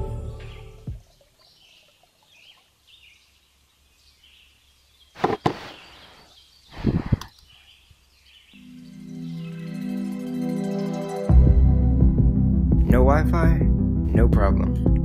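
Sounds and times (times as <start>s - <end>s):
music: 0.0s - 1.0s, 8.6s - 15.0s
faint bird chirps: 0.5s - 10.0s.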